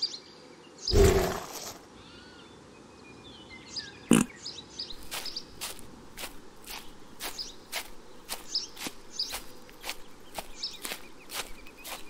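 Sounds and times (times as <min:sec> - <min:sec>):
small birds chirping: 0:00.0 - 0:12.0
footsteps walking: 0:05.0 - 0:12.0.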